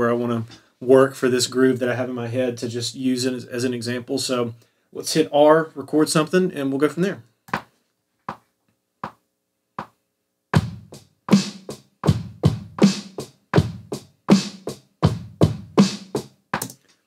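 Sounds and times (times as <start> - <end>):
drum kit groove: 9.0 - 9.2, 9.8 - 10.0, 10.6 - 17.0.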